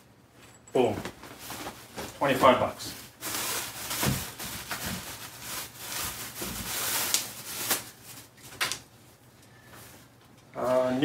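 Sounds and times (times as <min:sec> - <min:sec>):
shirt fabric rustling: 0:00.8 - 0:08.7.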